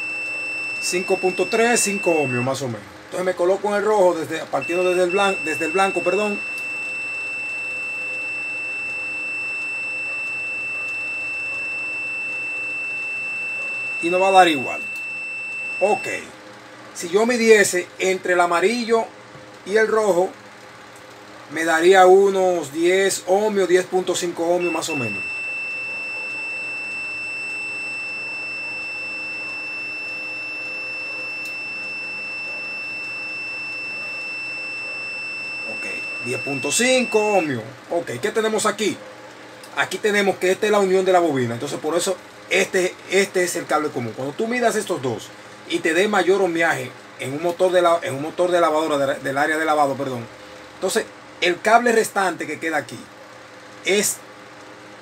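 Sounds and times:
multimeter high-pitched beep: 0.0 - 16.3, 22.6 - 38.9, 39.8 - 50.2.

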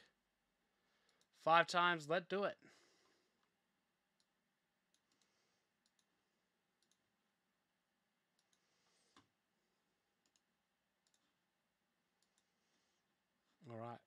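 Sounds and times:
faint clicks: 4.1 - 6.2, 6.8 - 7.0, 8.3 - 9.3, 10.2 - 11.3, 12.2 - 12.5.

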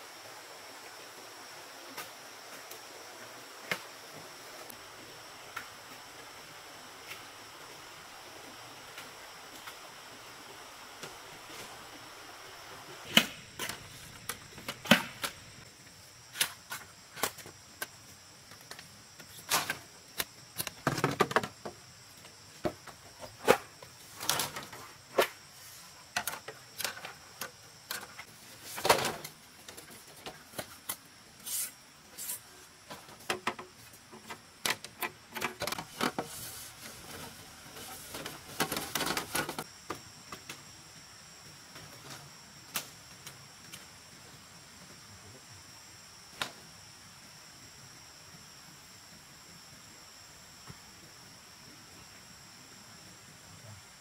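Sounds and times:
bamboo strips clattering: 26.1 - 31.0, 32.2 - 39.6.

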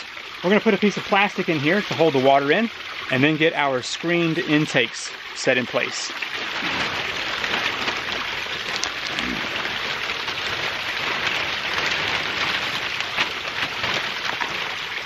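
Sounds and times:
plastic sheeting crinkling: 5.8 - 15.0.

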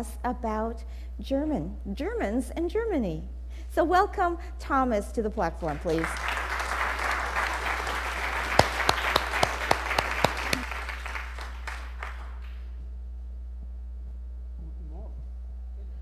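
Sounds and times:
crowd applauding: 5.7 - 12.7
loud individual claps: 5.8 - 12.8.

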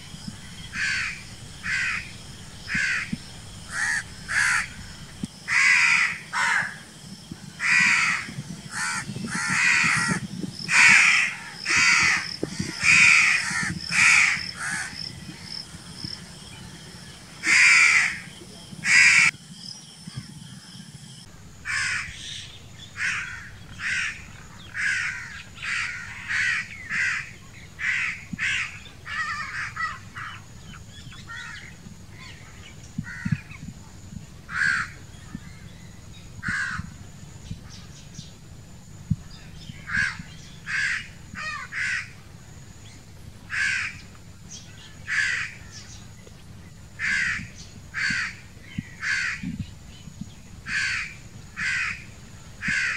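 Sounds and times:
crows cawing: 0.6 - 4.9, 5.5 - 6.9, 7.6 - 15.6, 17.4 - 19.3, 21.6 - 22.3, 23.0 - 30.4, 33.0 - 33.4, 34.5 - 35.0, 36.4 - 36.9, 39.9 - 42.2, 43.5 - 44.0, 45.1 - 45.8, 47.0 - 49.4, 50.7 - 52.9.

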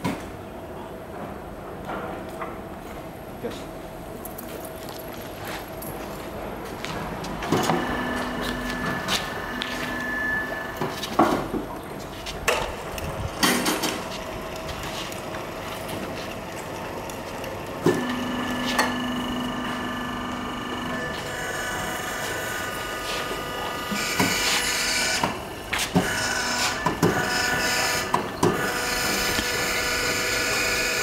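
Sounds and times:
electric hoist motor humming: 5.6 - 31.0
motor whirring: 17.8 - 31.0.

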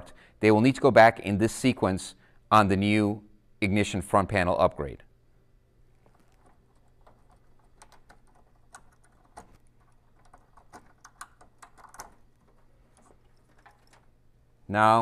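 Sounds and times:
small clicks and rattles of wires: 5.9 - 14.2.

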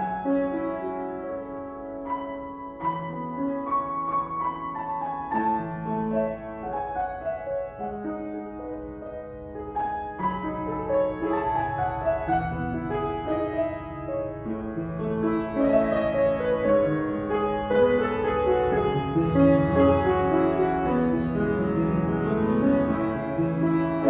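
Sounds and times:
slow keyboard chords: 0.0 - 24.0.

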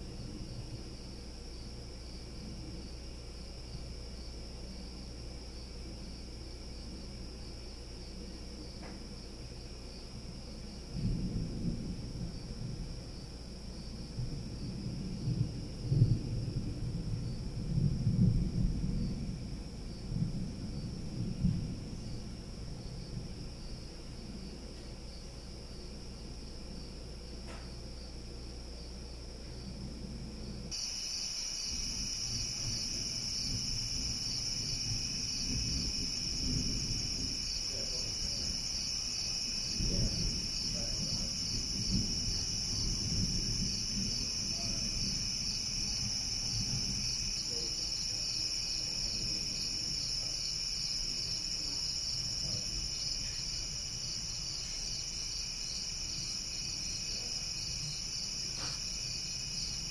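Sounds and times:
distant thunder rumble: 10.3 - 26.8, 31.7 - 50.4
insect chorus trilling: 30.4 - 59.9.

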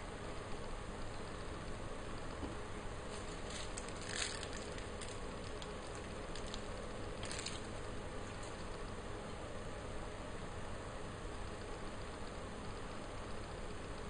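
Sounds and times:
background hum and hiss: 0.0 - 14.0
piping bag rustling: 3.0 - 9.0.

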